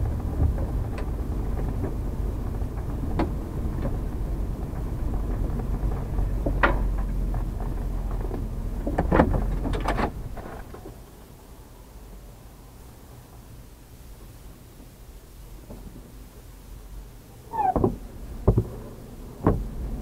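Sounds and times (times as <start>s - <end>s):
engine low rumble: 0.0s - 20.0s
sharp clicks and knocks: 0.2s - 11.0s, 19.4s - 19.7s.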